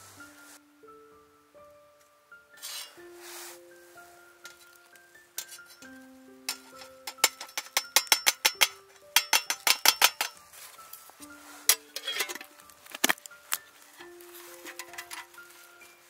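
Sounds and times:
soft background music: 0:00.0 - 0:16.0
metal stand clinking in pot: 0:02.6 - 0:03.0, 0:05.4 - 0:10.4, 0:11.6 - 0:15.8.

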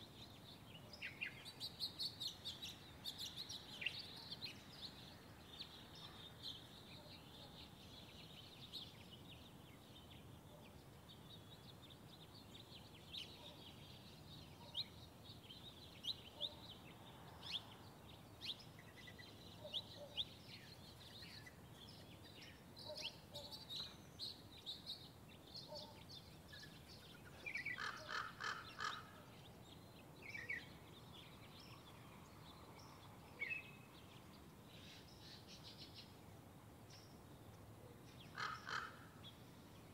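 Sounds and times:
birds chirping: 0:36.8 - 0:39.9.

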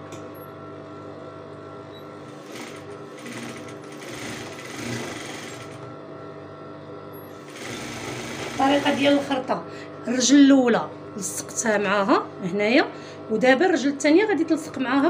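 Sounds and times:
sewing machine stitching: 0:02.3 - 0:05.8, 0:07.3 - 0:09.4.

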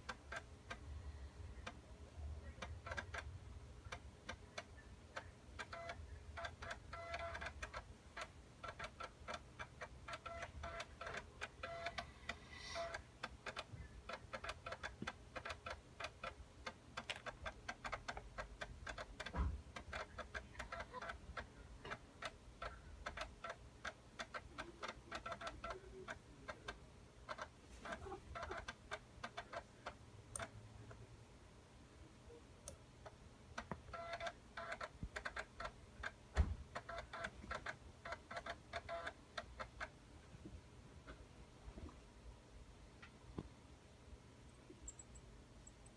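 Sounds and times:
hard drive clicking and ticking: 0:00.0 - 0:31.0, 0:32.6 - 0:40.0.

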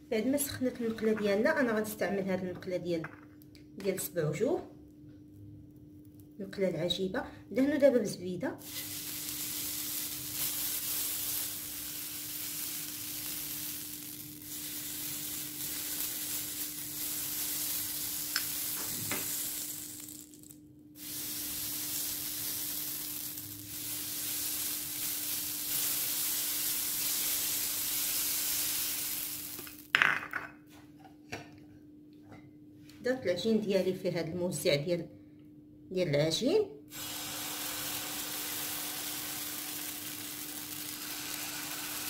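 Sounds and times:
butter sizzling in a hot pan: 0:08.6 - 0:29.9, 0:36.9 - 0:42.0.

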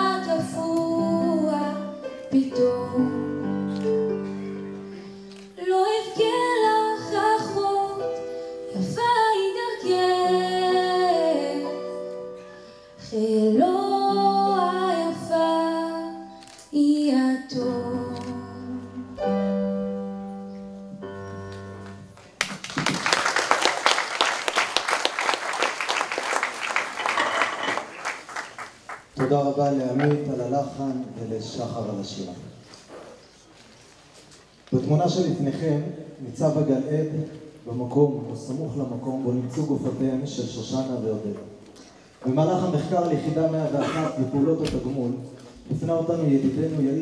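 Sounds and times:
woman singing into microphone: 0:00.0 - 0:03.8, 0:05.6 - 0:12.0, 0:13.0 - 0:19.2
audience applause: 0:22.2 - 0:29.4.

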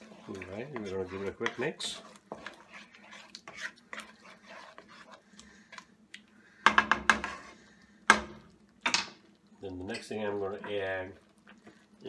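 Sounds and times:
spatula scraping a pan: 0:00.0 - 0:05.9, 0:06.6 - 0:08.2, 0:10.1 - 0:11.8
spatula knocking against pan: 0:06.6 - 0:07.4.

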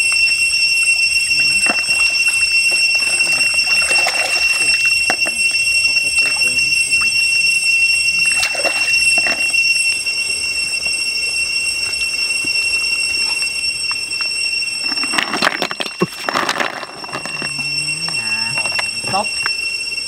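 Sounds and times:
high-pitched whine: 0:00.0 - 0:20.0
snails clattering and splashing into water: 0:01.6 - 0:05.4.

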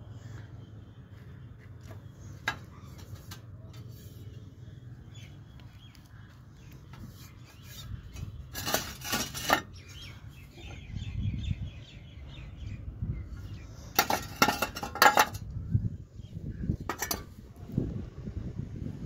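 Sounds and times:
hard objects clinking and knocking: 0:14.0 - 0:15.4.

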